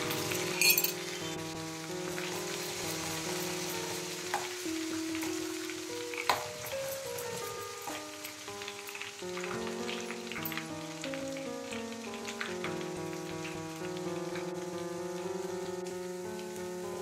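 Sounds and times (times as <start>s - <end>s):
background music: 0.0s - 17.0s
hot oil sizzling and bubbling: 0.0s - 17.0s
metal spoon clinking on pan: 0.5s - 1.1s.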